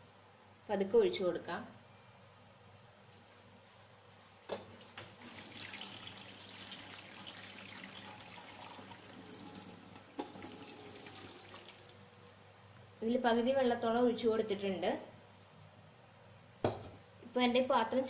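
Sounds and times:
water splashing through a colander: 4.6 - 12.1.

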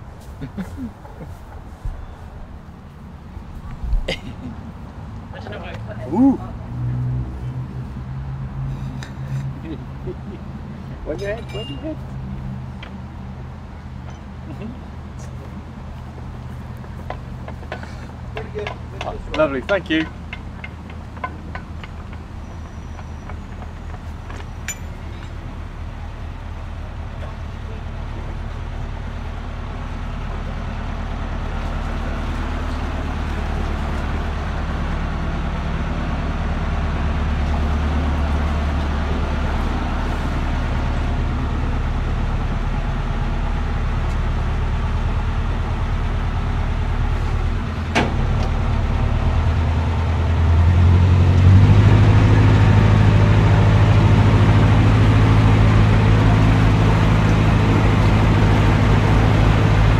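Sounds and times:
boat diesel engine running: 14.2 - 59.9.

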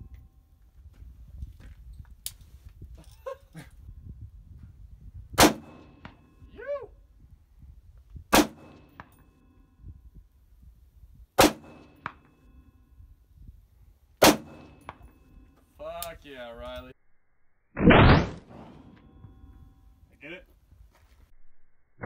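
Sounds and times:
rifle shots: 5.4 - 6.2, 8.3 - 9.1, 11.4 - 12.2, 14.2 - 15.0, 17.8 - 19.4.

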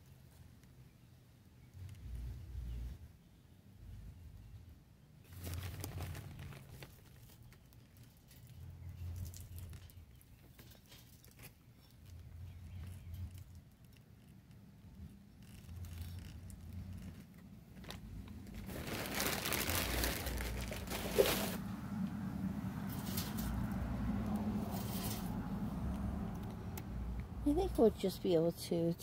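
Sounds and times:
soil rustling and crumbling: 5.2 - 14.2, 15.0 - 22.0, 22.8 - 25.5.

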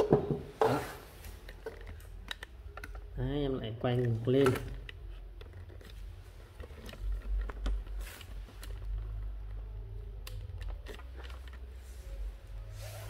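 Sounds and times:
handling clicks and knocks: 3.9 - 9.6.

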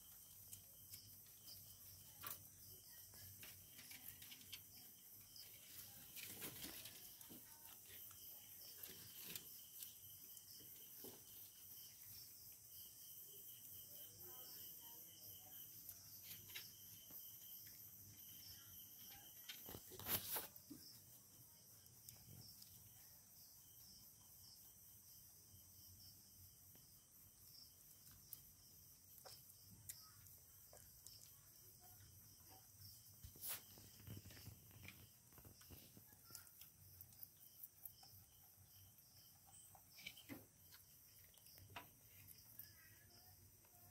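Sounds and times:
insects chirring: 0.0 - 43.9
soft rustles: 19.5 - 20.9, 32.9 - 36.1.

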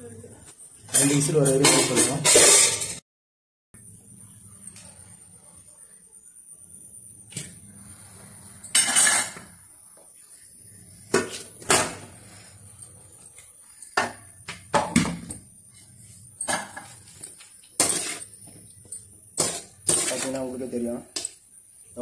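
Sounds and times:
metal ladle scraping pot: 17.8 - 18.4, 19.4 - 20.4.

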